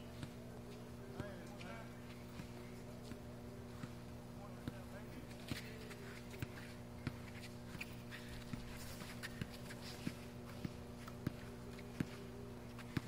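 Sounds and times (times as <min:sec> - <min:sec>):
steady low hum: 0:00.0 - 0:13.0
basketball dribbling on concrete: 0:06.4 - 0:07.3, 0:12.8 - 0:13.0.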